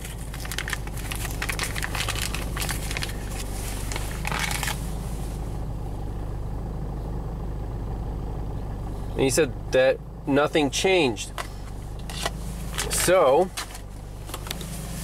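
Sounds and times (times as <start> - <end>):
plastic bag crinkling: 0.0 - 4.8
diesel engine idling: 0.0 - 15.0.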